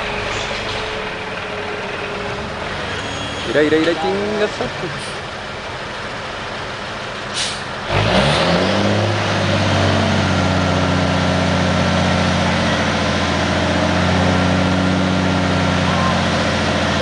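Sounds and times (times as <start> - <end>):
diesel truck engine revving: 0.0 - 17.0
air brake hiss: 7.3 - 7.7.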